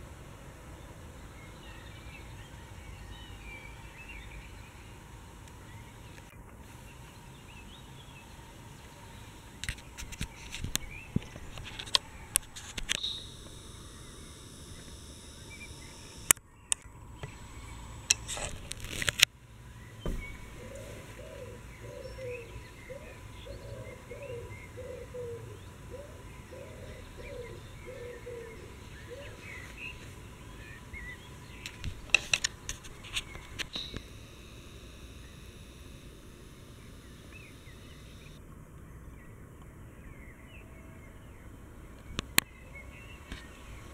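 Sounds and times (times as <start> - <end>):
birds chirping: 1.2 - 43.9
bird repeating low notes: 10.7 - 18.3, 19.8 - 32.1, 33.2 - 38.4.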